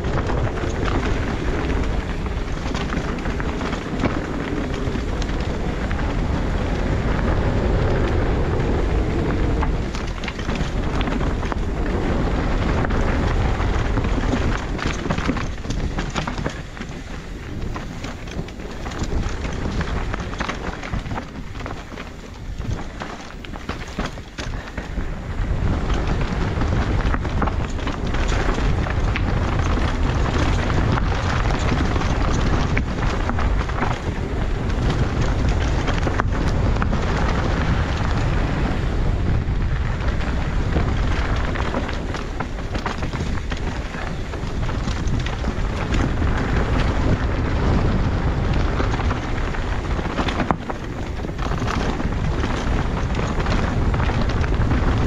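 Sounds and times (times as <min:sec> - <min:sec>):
bike knocks and rattles: 0:00.0 - 0:55.0
wind rushing over microphone: 0:00.0 - 0:55.0.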